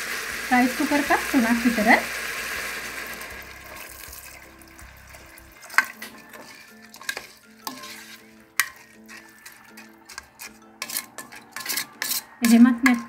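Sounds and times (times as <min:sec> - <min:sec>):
wet swishing of stirring: 0:03.7 - 0:13.0.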